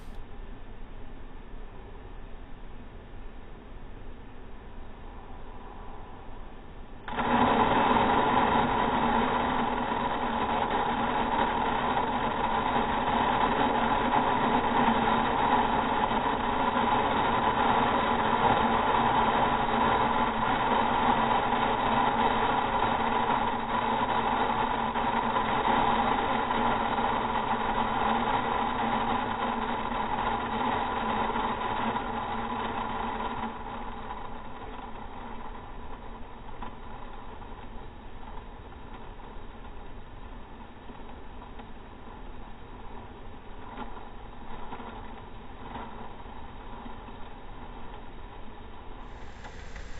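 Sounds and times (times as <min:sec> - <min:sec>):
fan hum: 0:00.0 - 0:18.9, 0:49.0 - 0:49.9
grain pouring deep rush: 0:49.0 - 0:49.9.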